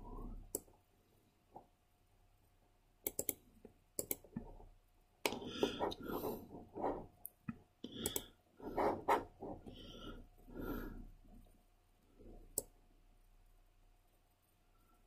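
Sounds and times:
computer mouse clicking: 0.5 - 0.8, 3.0 - 4.5, 7.2 - 8.3.

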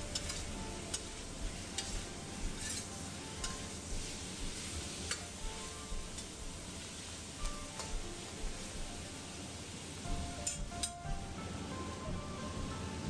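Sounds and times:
spatula scraping a wok: 0.0 - 2.0, 2.6 - 6.3
chicken sizzling in a wok: 0.0 - 10.9.

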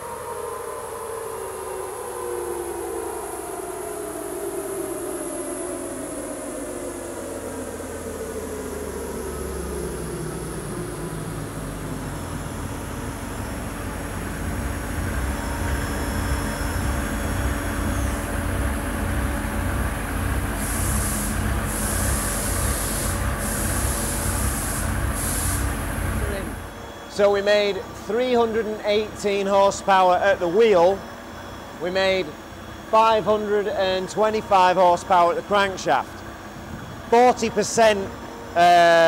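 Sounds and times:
diesel engine rumbling: 7.5 - 29.4
high hiss: 20.5 - 27.3.

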